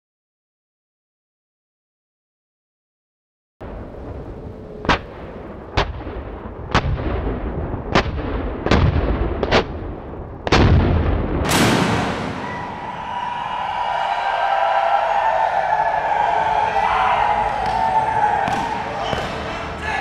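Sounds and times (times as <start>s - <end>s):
loud cannon blast with rumble: 3.6s - 12.8s
cannons firing: 4.8s - 12.9s.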